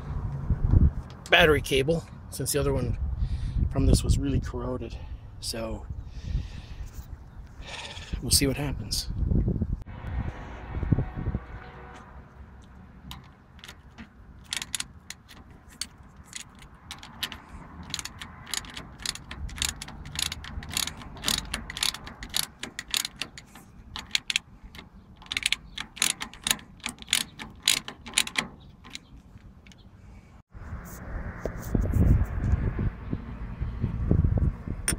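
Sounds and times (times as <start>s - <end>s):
socket ratchet clicking: 13.1s - 29.8s.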